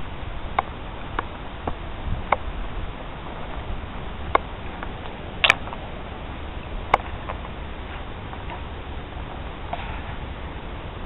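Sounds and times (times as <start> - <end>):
sticks snapping underfoot: 4.3 - 5.8.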